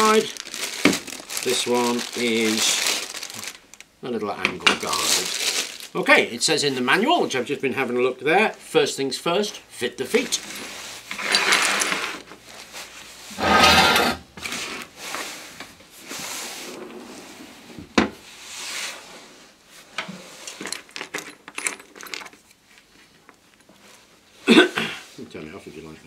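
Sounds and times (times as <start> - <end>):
metal scraping on a workbench: 11.1 - 12.2, 13.3 - 14.7
clicks and rattles: 20.5 - 22.5.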